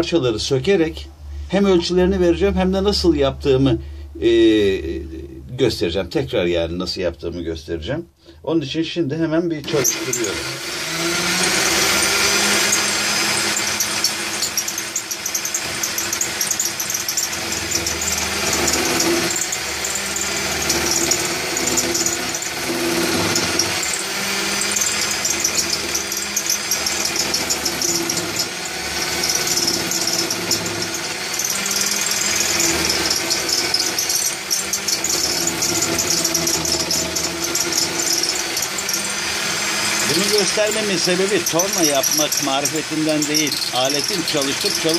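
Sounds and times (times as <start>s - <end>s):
electric drill motor whine: 9.6s - 44.9s
chisel rasping on spinning wood: 9.8s - 44.9s.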